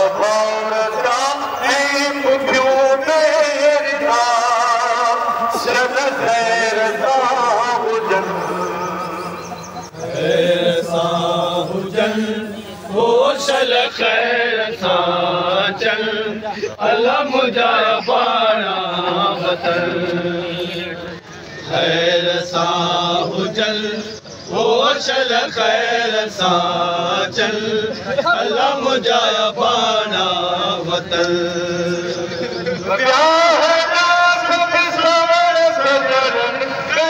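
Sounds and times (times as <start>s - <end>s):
men chanting a lament: 0.0s - 37.0s.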